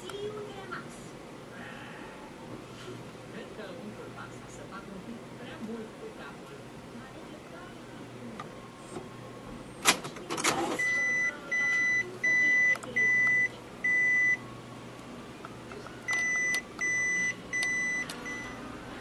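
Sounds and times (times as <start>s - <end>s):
printer error beeps: 10.4s - 14.4s, 16.0s - 18.6s.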